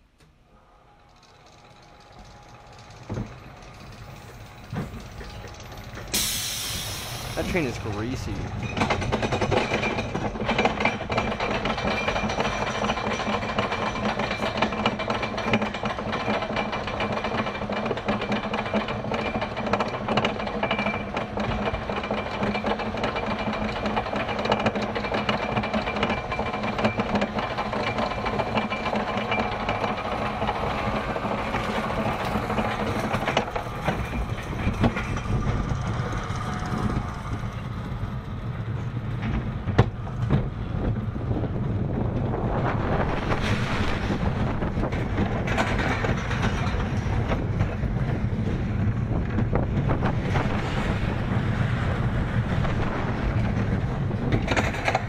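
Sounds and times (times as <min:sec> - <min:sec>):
roller coaster train rolling: 0:00.0 - 0:55.0
lift chain clattering: 0:00.8 - 0:06.4, 0:07.4 - 0:38.6, 0:44.6 - 0:47.8
ratchet clicking rapidly: 0:01.0 - 0:06.2.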